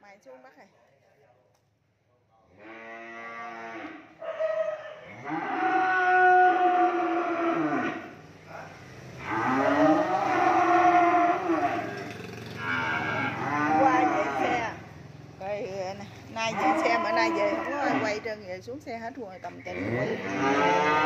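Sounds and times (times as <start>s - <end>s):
cattle mooing: 2.5s - 8.2s, 9.2s - 14.8s, 16.4s - 18.3s, 19.6s - 21.0s.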